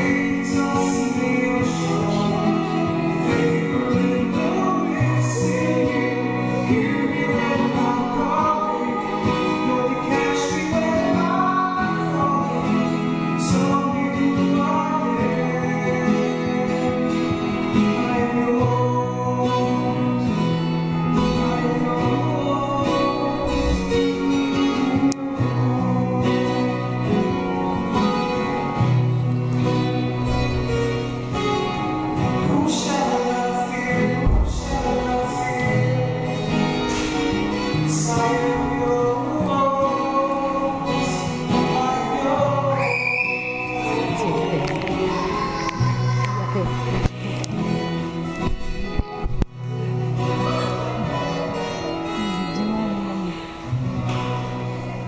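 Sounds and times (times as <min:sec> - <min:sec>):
choir singing a hymn: 0:00.0 - 0:14.2.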